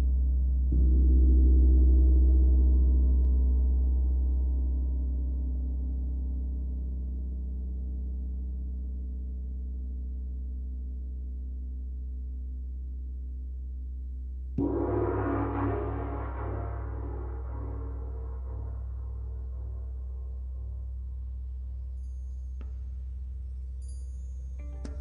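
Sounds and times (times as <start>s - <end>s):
large gong ringing: 14.6s - 19.6s.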